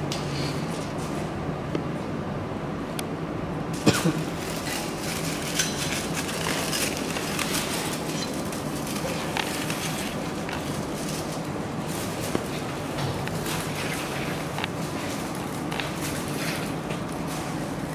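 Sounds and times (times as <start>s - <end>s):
steady low hum: 0.0s - 17.9s
paper rustling in rollers: 3.8s - 17.9s.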